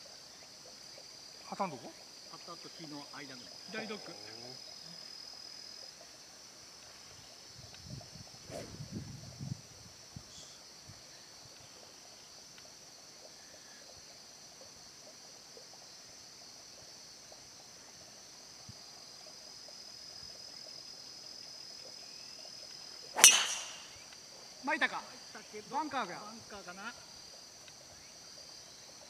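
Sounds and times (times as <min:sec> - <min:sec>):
insects chorus: 0:00.0 - 0:29.0
golf club striking ball: 0:23.2 - 0:24.0.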